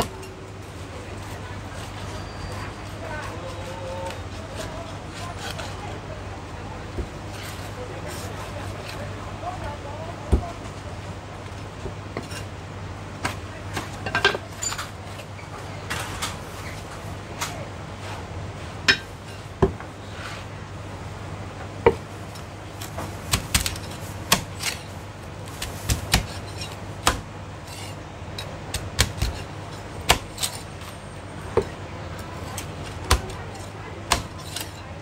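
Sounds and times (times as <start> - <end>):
cleaver chopping on wooden block: 23.3 - 24.8, 25.6 - 27.3, 28.7 - 29.4, 30.1 - 30.6, 32.6 - 34.7.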